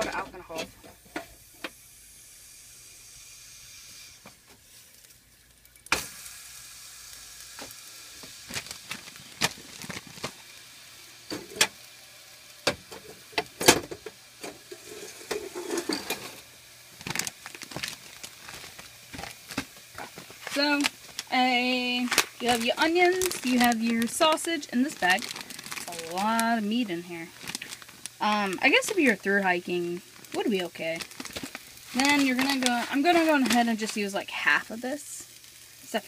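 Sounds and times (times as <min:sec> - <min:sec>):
faint steady hiss: 0:00.0 - 0:36.0
plastic bag crinkling: 0:08.1 - 0:10.6, 0:14.8 - 0:34.8.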